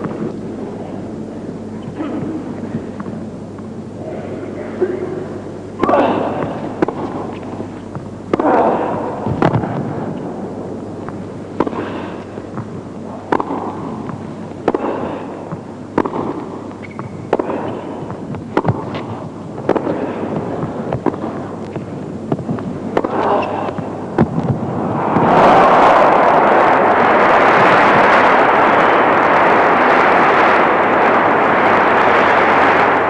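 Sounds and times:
ball bouncing on court: 5.8 - 10.3, 11.0 - 24.6
racket hitting tennis ball: 5.8 - 10.3, 11.6 - 25.3.

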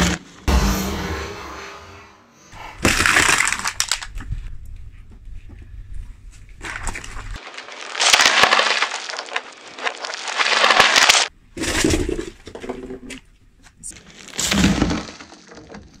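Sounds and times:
tyre crushing bread roll: 6.6 - 11.3.

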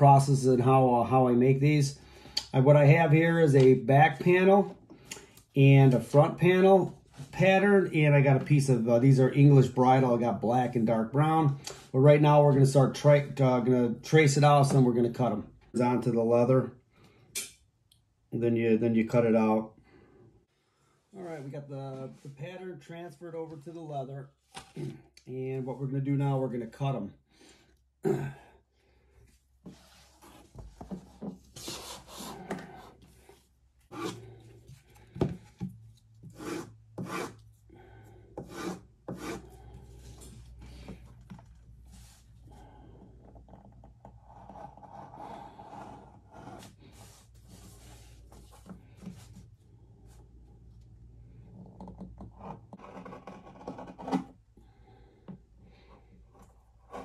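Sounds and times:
knife scraping through leather: 36.2 - 37.5.

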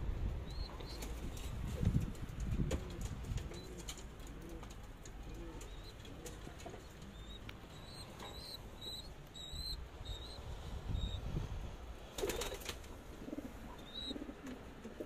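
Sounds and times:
pigeons cooing: 2.7 - 10.4, 12.3 - 15.0.

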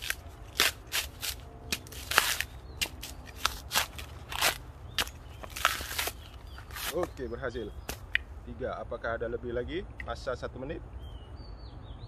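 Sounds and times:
coconut husk ripping and cracking: 0.0 - 8.2.

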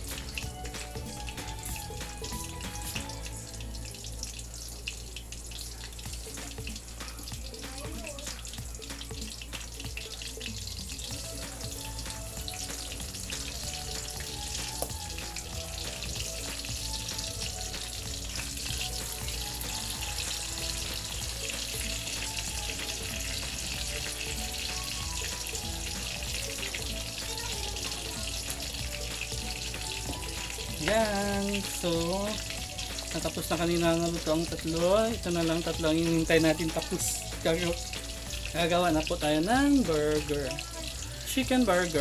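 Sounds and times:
faint background music: 0.0 - 42.0
patties sizzling in hot oil: 0.0 - 42.0.

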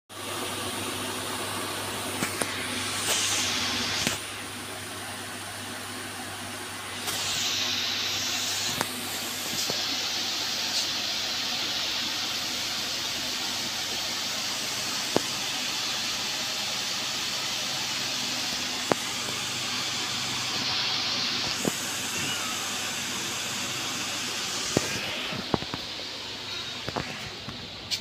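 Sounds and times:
steady hissing: 6.3 - 28.0.

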